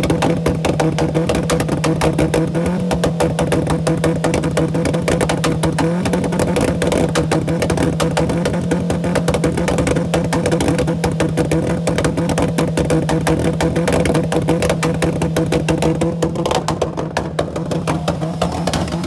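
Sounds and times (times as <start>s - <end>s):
car engine at high revs: 0.0s - 19.0s
exhaust crackling pops: 0.0s - 19.0s.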